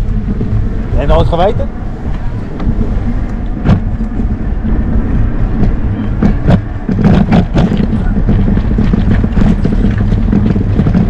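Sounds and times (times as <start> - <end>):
tyre and wind noise: 0.0 - 11.0
knocks over bumps: 5.5 - 11.0.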